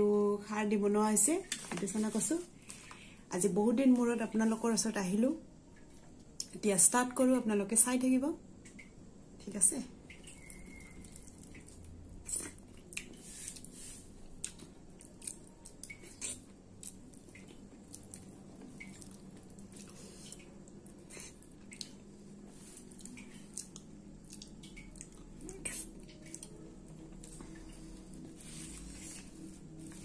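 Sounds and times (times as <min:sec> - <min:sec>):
wet chewing and mouth smacks: 0:10.1 - 0:30.0.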